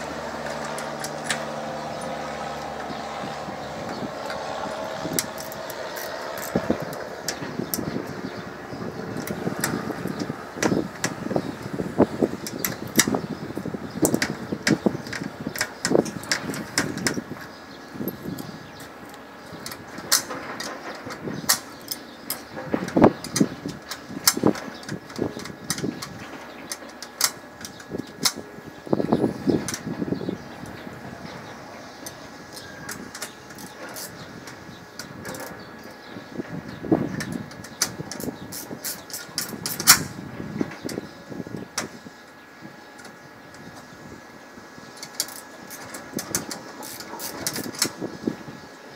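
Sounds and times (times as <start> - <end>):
tools clicking and scraping on metal: 0.0 - 41.0, 44.8 - 48.1
hand tool metallic clicks: 5.1 - 7.9.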